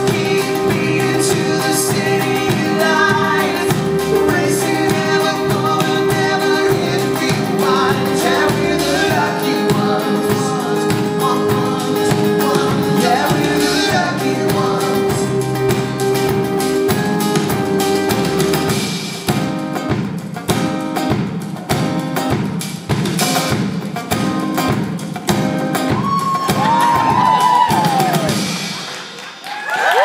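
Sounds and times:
male lead singer: 0:00.0 - 0:17.4
live rock band playing: 0:00.0 - 0:30.0.

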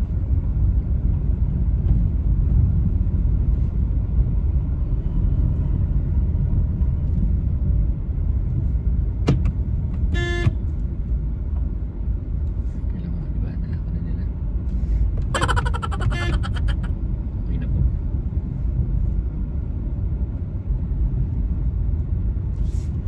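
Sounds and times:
car road and engine rumble: 0:00.0 - 0:23.0
car horn honk: 0:10.1 - 0:10.6, 0:15.4 - 0:16.9.

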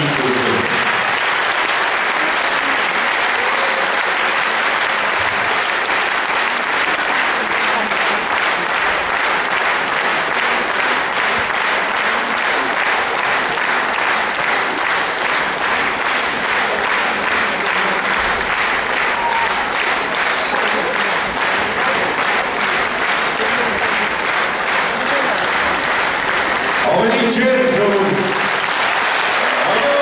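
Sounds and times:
large audience applauding: 0:00.0 - 0:30.0
rhythmic clapping in unison: 0:00.0 - 0:30.0.

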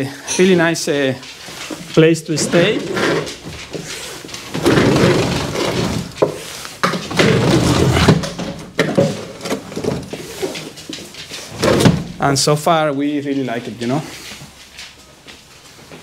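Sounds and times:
roller shutter slats rattling: 0:01.9 - 0:12.5.

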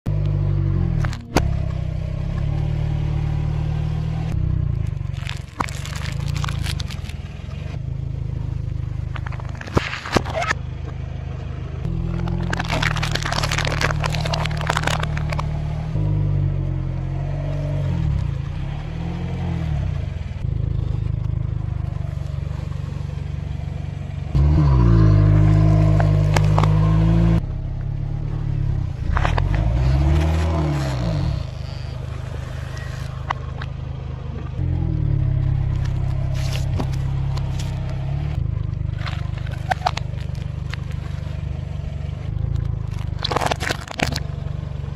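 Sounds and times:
car engine revving: 0:00.1 - 0:44.9
tyre crushing objects: 0:05.0 - 0:07.2, 0:11.9 - 0:15.5, 0:42.7 - 0:44.3.

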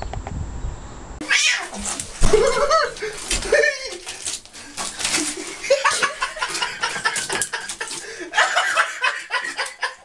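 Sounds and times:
person laughing: 0:02.2 - 0:04.3, 0:05.1 - 0:10.0.

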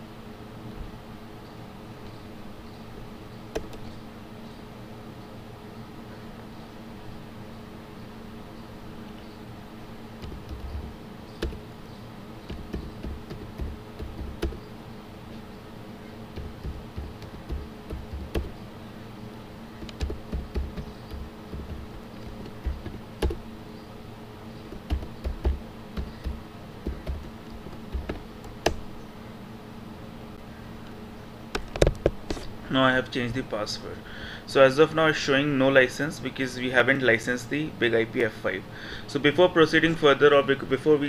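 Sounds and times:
steady low hum: 0:00.0 - 0:41.0
computer keyboard clicking: 0:10.2 - 0:11.6, 0:12.5 - 0:14.6, 0:16.4 - 0:18.6, 0:19.8 - 0:23.4, 0:24.7 - 0:28.8.

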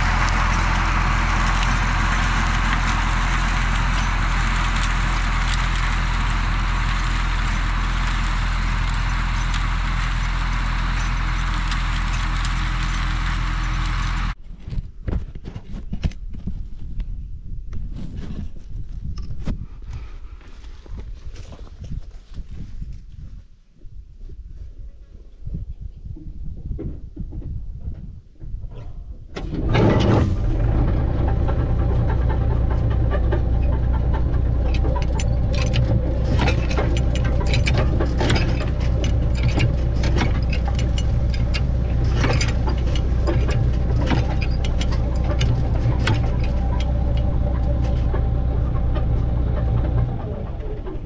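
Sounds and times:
tractor engine droning: 0:00.0 - 0:14.4, 0:29.3 - 0:51.0
chain drive clattering: 0:29.6 - 0:51.0.

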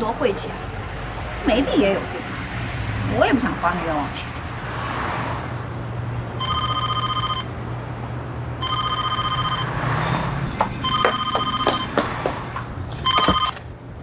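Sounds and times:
street traffic hum: 0:00.0 - 0:14.0
telephone ringing electronic trill: 0:06.4 - 0:07.5, 0:08.6 - 0:09.8, 0:10.8 - 0:11.9.

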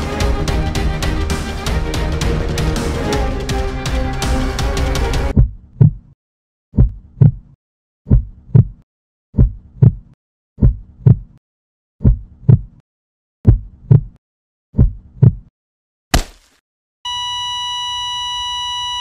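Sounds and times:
heartbeat double thumps: 0:05.3 - 0:06.1, 0:06.8 - 0:08.8, 0:09.4 - 0:11.4, 0:12.0 - 0:12.8, 0:13.4 - 0:14.2, 0:14.8 - 0:15.5.

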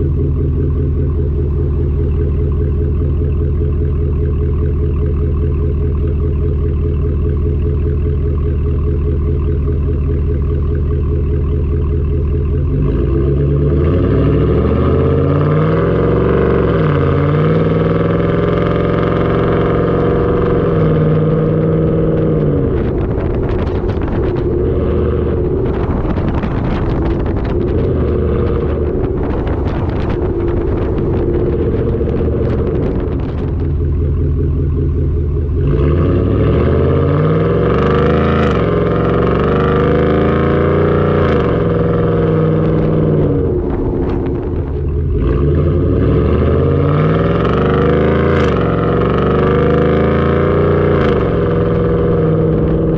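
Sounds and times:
truck exhaust note: 0:00.0 - 0:52.9
rough rushing noise: 0:19.3 - 0:48.6.

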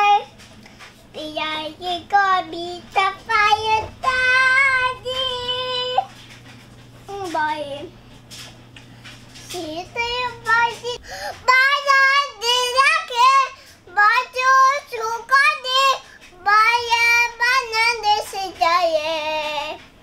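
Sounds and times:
child singing: 0:00.0 - 0:00.3, 0:01.2 - 0:06.1, 0:09.5 - 0:19.8.

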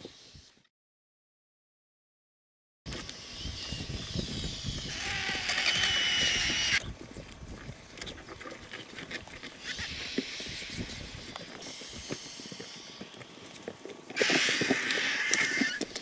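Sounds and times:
vultures pecking and clicking: 0:02.9 - 0:16.0
vultures hissing and squealing: 0:03.1 - 0:06.8, 0:09.4 - 0:16.0.

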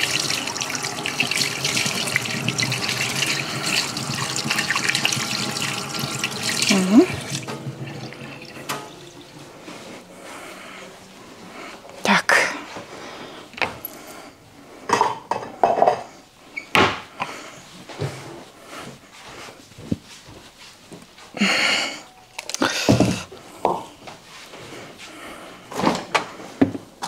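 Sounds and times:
kitchen items knocking and clattering: 0:14.9 - 0:16.2, 0:22.7 - 0:23.9.

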